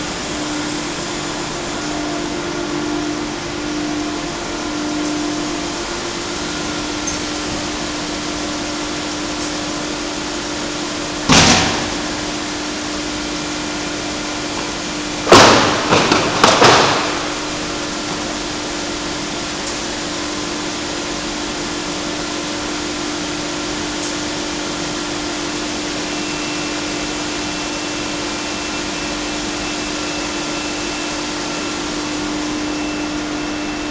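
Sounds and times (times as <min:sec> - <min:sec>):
machine humming: 0:00.0 - 0:33.9
loud knocks: 0:11.3 - 0:12.2, 0:15.2 - 0:17.4.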